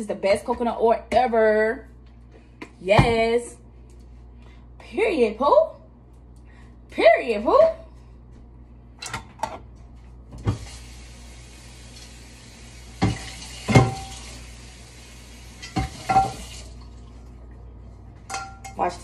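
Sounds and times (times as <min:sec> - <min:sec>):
kitchen tap running: 0:10.4 - 0:17.4.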